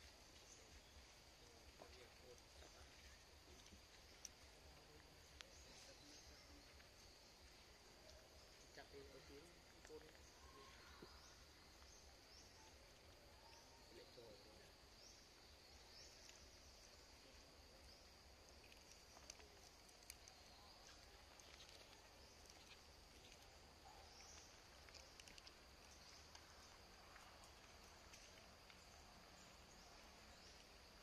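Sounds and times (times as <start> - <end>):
faint clicks: 18.4 - 29.0.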